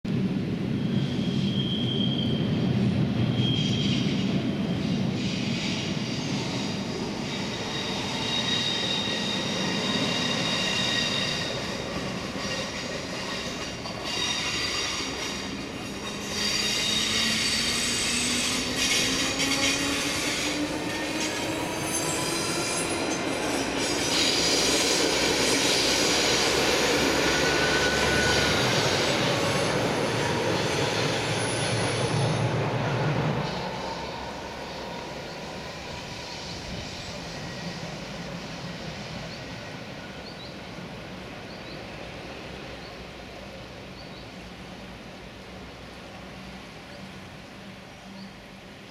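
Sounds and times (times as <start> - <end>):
train approaching: 0.1 - 48.9
wheels squealing: 5.2 - 32.5.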